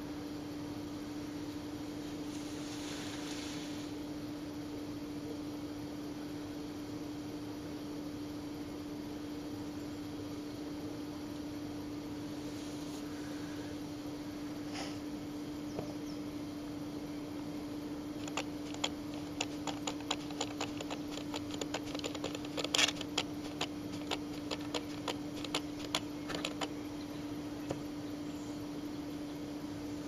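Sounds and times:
steady low hum: 0.0s - 30.0s
antlers knocking together: 18.2s - 26.7s.

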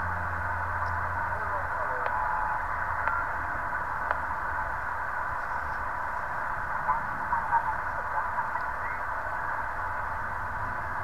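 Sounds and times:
shortwave radio static hiss: 0.0s - 11.0s
warbling radio signals: 5.3s - 9.9s.

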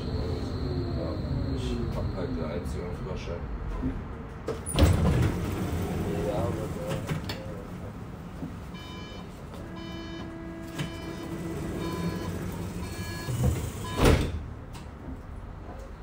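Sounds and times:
tram doors shutting thud: 3.7s - 15.2s
short electronic beeps: 8.8s - 11.2s, 11.8s - 14.0s.

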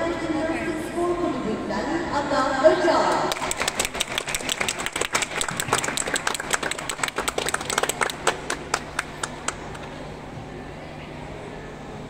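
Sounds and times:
audience clapping: 3.3s - 9.9s.

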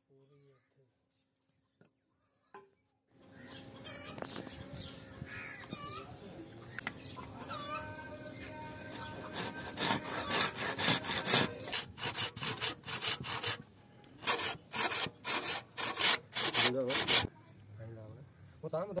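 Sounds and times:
hand saw cutting wood: 8.5s - 13.6s, 14.2s - 17.3s.

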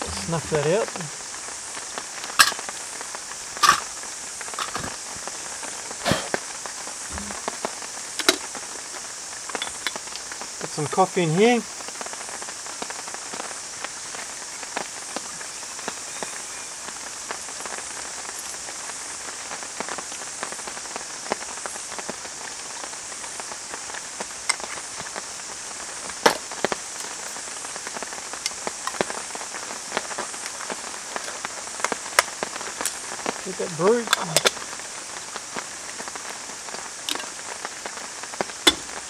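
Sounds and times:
light rain hissing: 0.0s - 39.0s
rain drops tapping: 0.0s - 39.0s.

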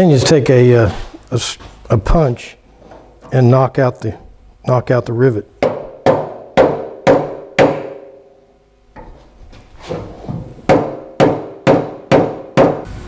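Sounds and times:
mallet striking metal punch: 5.6s - 8.3s, 10.7s - 12.9s.

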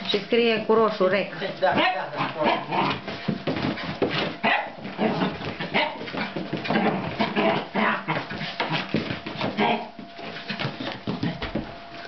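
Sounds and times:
puppy barking: 4.4s - 6.1s.

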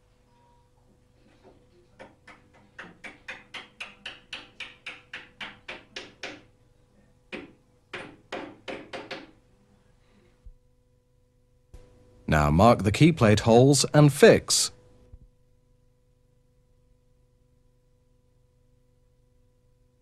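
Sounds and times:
hammer tapping metal: 2.0s - 6.5s.

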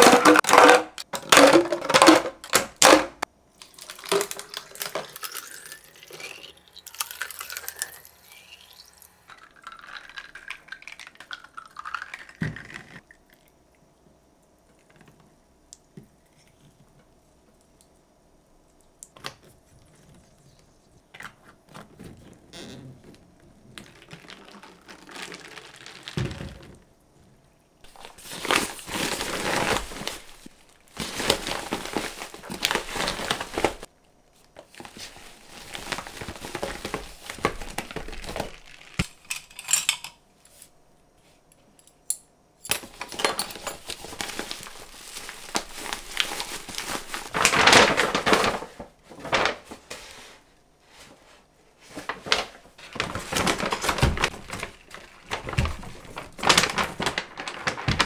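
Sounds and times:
packaging crinkling and rustling: 21.2s - 26.8s, 27.8s - 39.2s, 42.7s - 50.2s, 51.9s - 58.0s.

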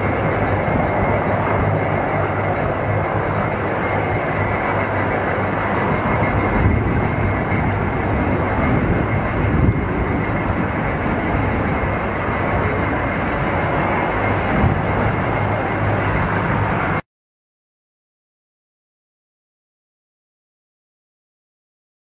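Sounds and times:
jet engines roaring with whine: 0.0s - 17.1s.

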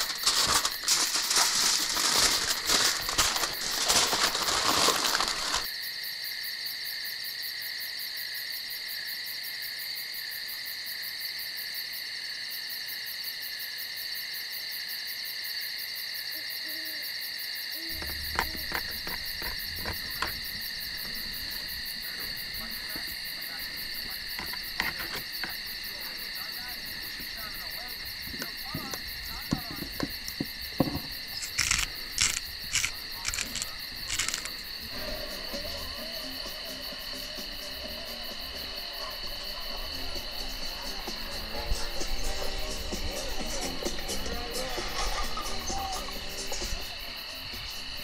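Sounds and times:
aluminium foil crinkling: 0.0s - 5.7s, 17.9s - 29.8s, 31.1s - 34.7s
night insects chorus: 0.0s - 48.0s
scattered clicks: 31.4s - 34.6s.

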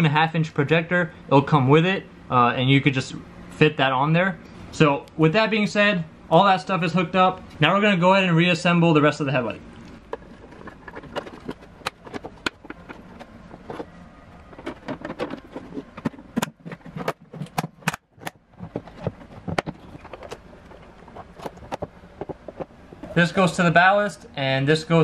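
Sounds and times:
plastic clicks and knocks: 10.1s - 13.9s, 14.5s - 23.1s.

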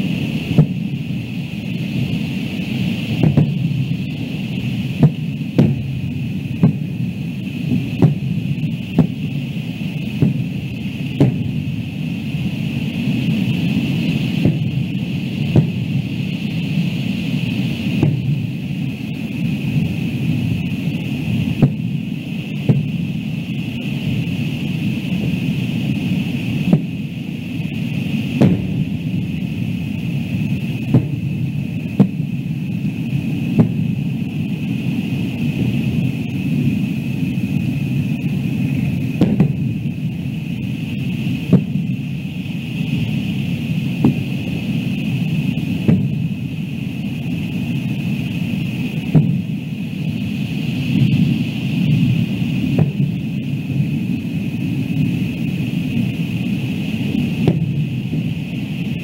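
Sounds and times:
fireworks bangs: 0.0s - 19.0s, 19.6s - 23.2s, 26.5s - 36.7s, 37.4s - 46.9s, 47.6s - 49.8s, 52.0s - 53.3s, 57.1s - 58.3s
steady background rush: 0.0s - 59.0s.

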